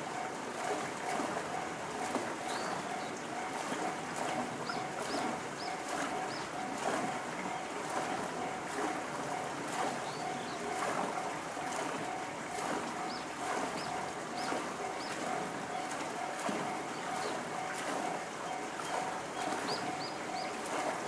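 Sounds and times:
level-crossing alarm bell dinging: 14.8 - 17.8.

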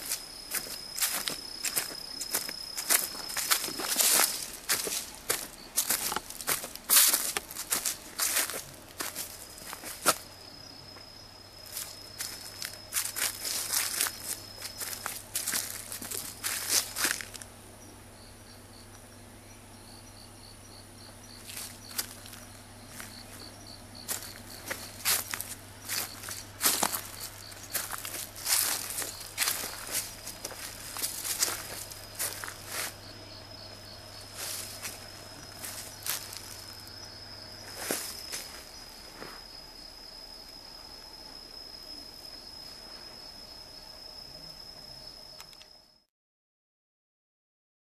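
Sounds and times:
footsteps crunching on dry leaves: 0.0 - 17.5, 21.4 - 39.6
insect chirping: 0.0 - 46.1.

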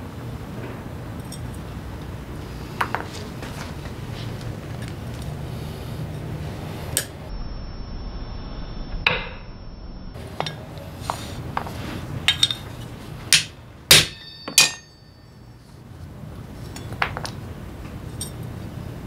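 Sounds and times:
metallic ring: 12.3 - 12.9, 13.9 - 15.7.

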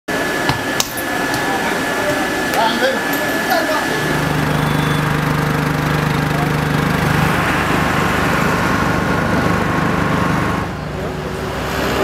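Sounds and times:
small engine humming: 0.1 - 12.0.

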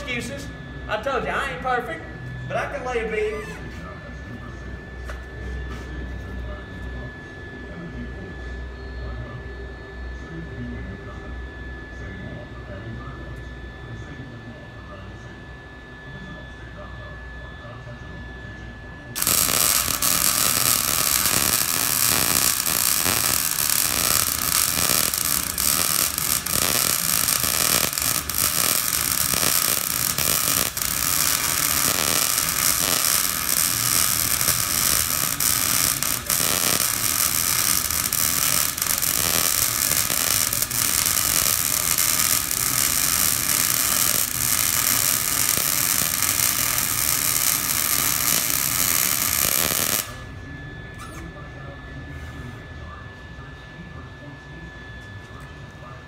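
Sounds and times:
welding arc crackling hiss: 19.2 - 50.2.

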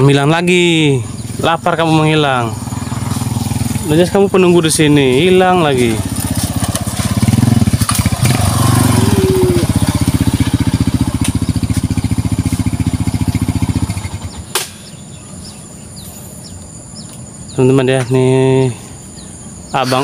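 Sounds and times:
faint bird chirps: 0.0 - 4.8, 9.0 - 20.0
small engine running: 0.8 - 16.5
sharp click: 14.5 - 14.9.

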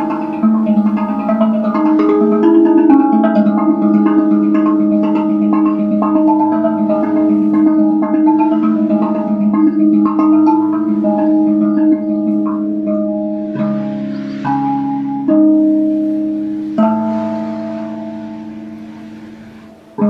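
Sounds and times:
steel tongue drum notes: 0.0 - 20.0.

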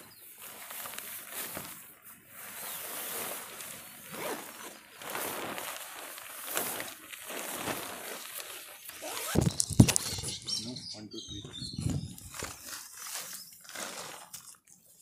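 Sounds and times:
nylon tent fly rustling: 0.0 - 10.3, 12.0 - 15.0.

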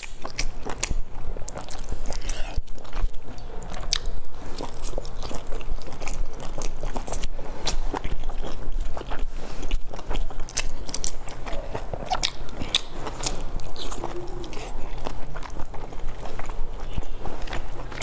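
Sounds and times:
wet mouth clicks and smacks: 0.0 - 2.8
chewing soft bun: 0.0 - 18.0.

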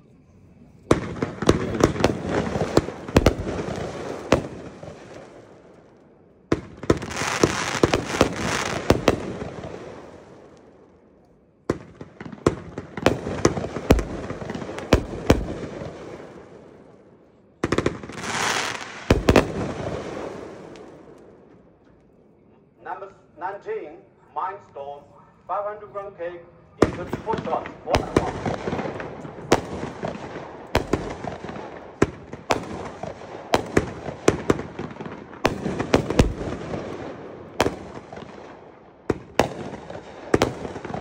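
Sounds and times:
fireworks crackling: 0.0 - 11.1, 11.7 - 22.1, 25.5 - 41.0
fireworks bangs: 0.8 - 11.1, 11.7 - 21.8, 25.5 - 41.0.

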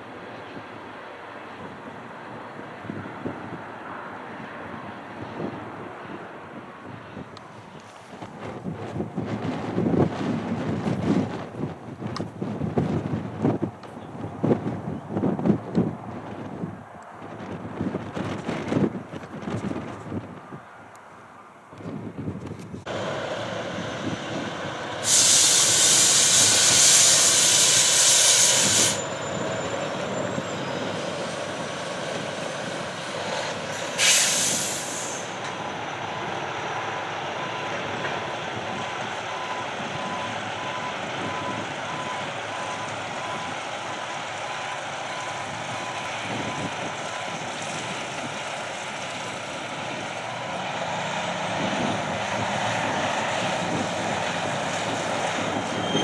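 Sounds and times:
low rumble of moving train: 0.0 - 56.0
air brakes hissing: 24.9 - 31.6, 33.5 - 35.5.

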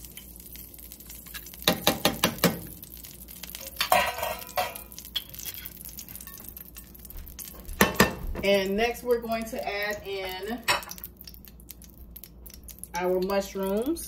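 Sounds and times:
kitchenware clattering: 3.6 - 6.5, 7.6 - 8.6, 9.9 - 11.0
dish clinking: 3.8 - 4.9.

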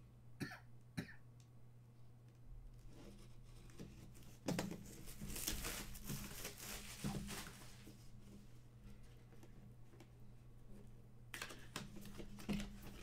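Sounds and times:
packaging tearing and crinkling: 5.0 - 7.8.

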